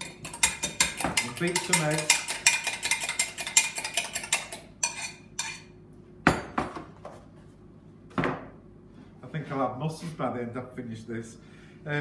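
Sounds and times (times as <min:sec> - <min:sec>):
fork beating eggs in glass jug: 0:00.0 - 0:05.7.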